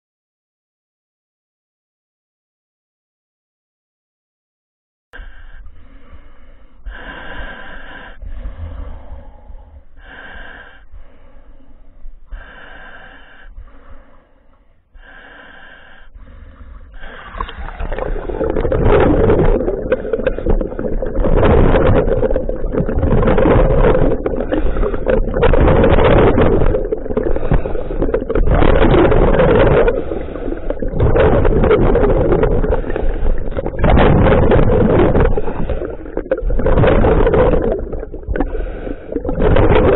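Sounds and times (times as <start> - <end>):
regulator breath hisses: 5.2 - 17.8
underwater exhaled bubbles gurgling: 15.6 - 39.9.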